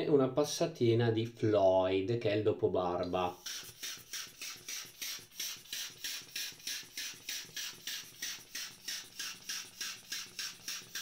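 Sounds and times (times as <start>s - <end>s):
rubber bulb squeezing: 3.3s - 11.0s.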